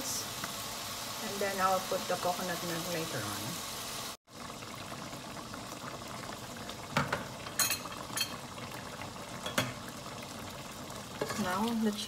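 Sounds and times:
sauce bubbling in a pot: 0.1s - 12.0s.

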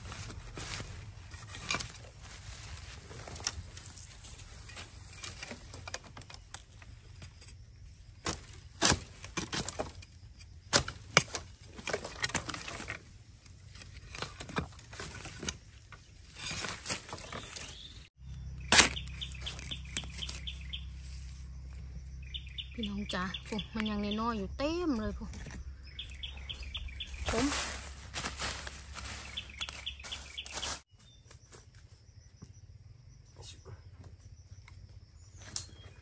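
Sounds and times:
bamboo cracking and rustling: 0.0s - 21.8s, 25.3s - 31.6s
machete chopping bamboo: 8.2s - 10.0s, 10.7s - 12.9s, 18.7s - 20.4s
bird chirps: 17.2s - 27.9s, 28.9s - 36.0s.

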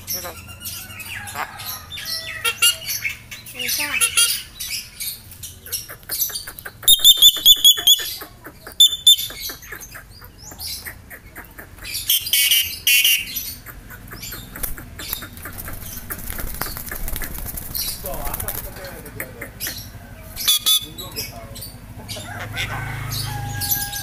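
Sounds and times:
bird rasping squawk: 0.1s - 5.0s, 5.6s - 10.2s
bird whistled notes: 6.9s - 8.1s, 8.8s - 9.4s.

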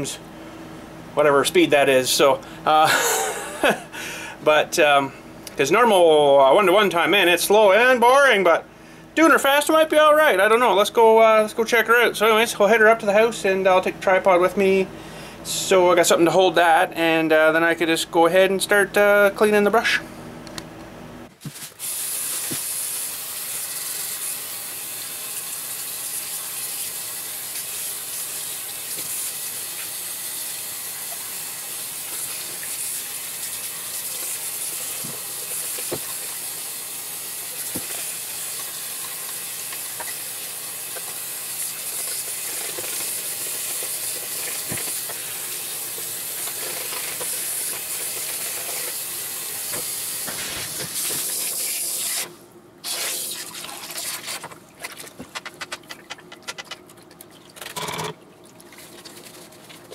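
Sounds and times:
tap water running into sink: 28.9s - 51.7s.

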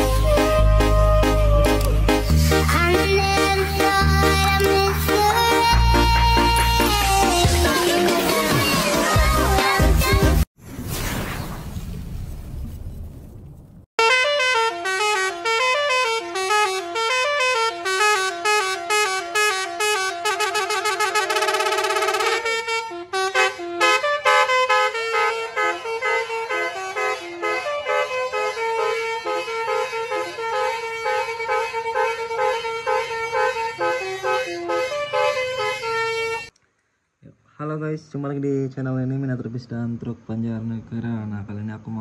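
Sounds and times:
multi-tone bus horn melody: 0.0s - 10.5s, 14.0s - 36.6s.

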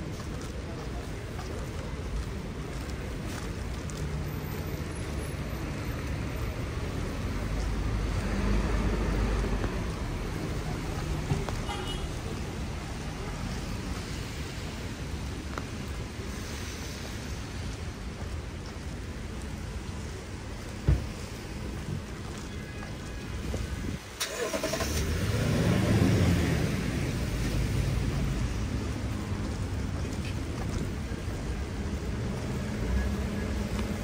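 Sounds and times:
tyres hissing on wet road: 0.0s - 34.0s
vehicle engines: 0.0s - 34.0s
vehicle passing: 6.8s - 11.5s.

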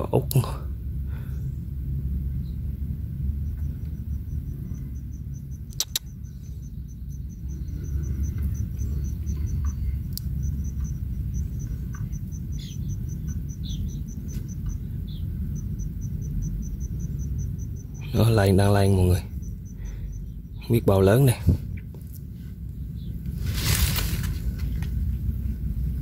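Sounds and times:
low steady rumble: 0.0s - 26.0s
cricket chirping: 0.8s - 23.3s
sharp clicks: 5.6s - 6.2s, 9.6s - 11.0s.

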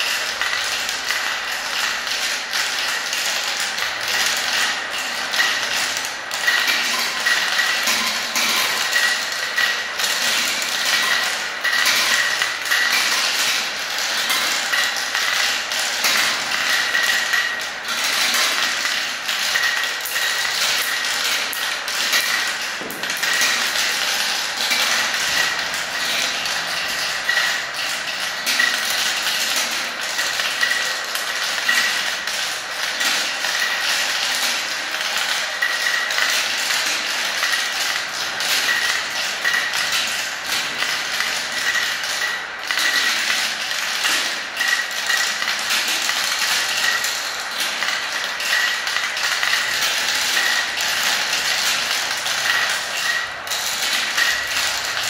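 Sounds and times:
plastic balls rattling through marble run: 0.0s - 55.0s.

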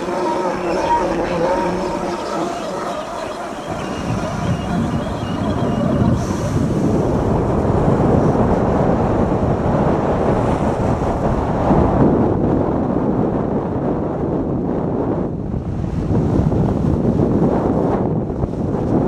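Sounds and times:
wind on microphone: 0.0s - 19.0s.

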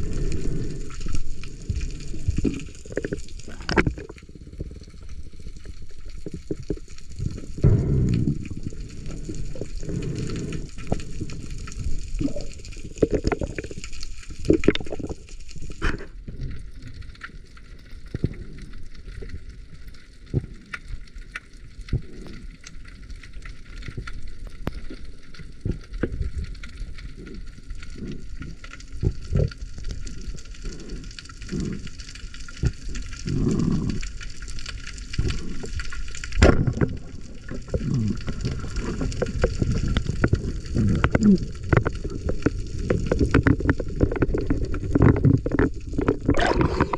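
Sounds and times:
muffled water sloshing: 36.3s - 46.9s.

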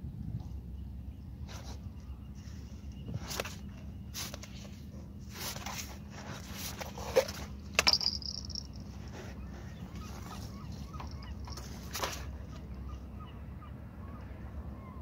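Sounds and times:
steady low hum: 0.0s - 15.0s
handling clicks and rustles: 3.0s - 12.7s.

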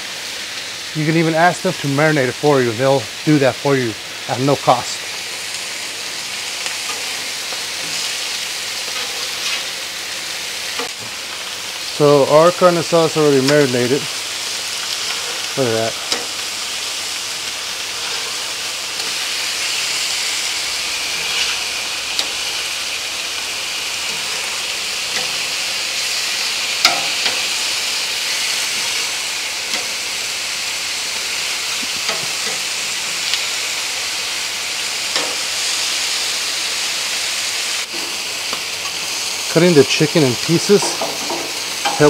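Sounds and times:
meat sizzling on a griddle: 0.0s - 42.0s
metal tongs scraping steel: 15.1s - 16.4s, 25.1s - 25.5s, 26.8s - 27.5s.

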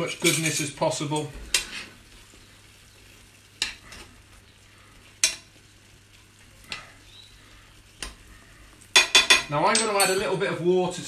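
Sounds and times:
sauce sizzling: 0.0s - 11.0s
metal spoon scraping a frying pan: 0.1s - 0.8s, 1.5s - 2.0s, 3.6s - 4.2s
spoon clinking against pan: 8.9s - 10.3s.

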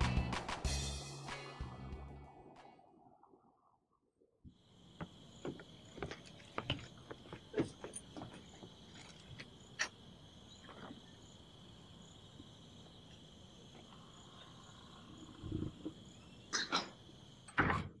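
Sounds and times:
crickets trilling: 4.5s - 18.0s.

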